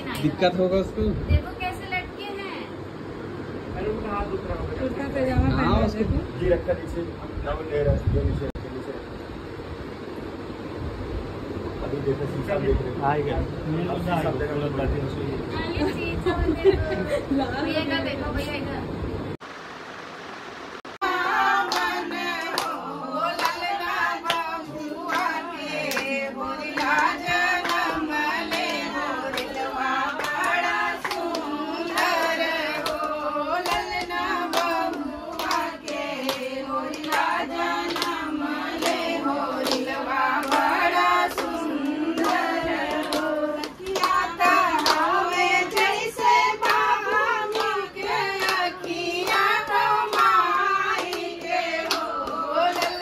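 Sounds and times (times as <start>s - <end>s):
rhythmic hand-clapping: 21.0s - 53.0s
women singing: 21.0s - 53.0s.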